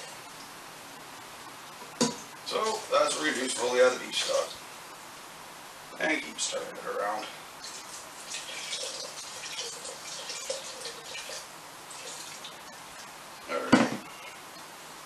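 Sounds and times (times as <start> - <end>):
liquid trickling and splashing: 7.6 - 13.4.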